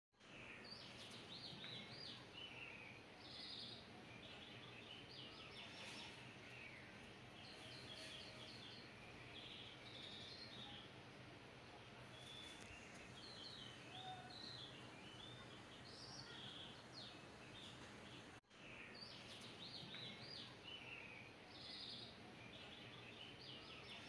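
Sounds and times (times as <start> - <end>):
faint birdsong chirps and trills: 0.2 - 24.0
soft steady hiss: 0.2 - 24.0.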